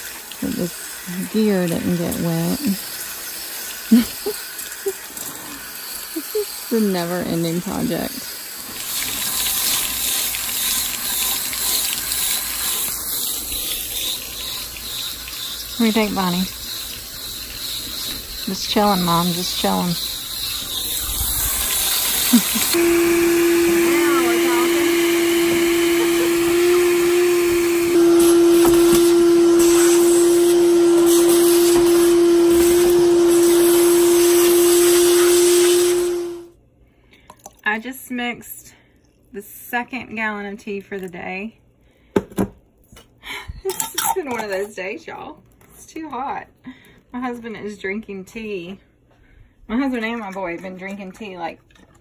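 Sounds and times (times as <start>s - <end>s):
shop vacuum running: 0.0s - 3.0s, 3.9s - 8.7s, 11.4s - 36.6s
garden hose spraying water: 0.0s - 36.5s.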